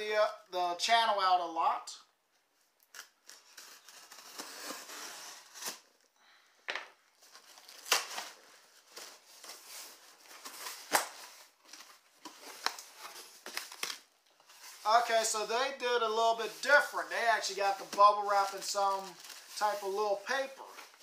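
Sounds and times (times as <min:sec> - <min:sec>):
tape tearing: 0:02.8 - 0:06.1, 0:07.3 - 0:14.8.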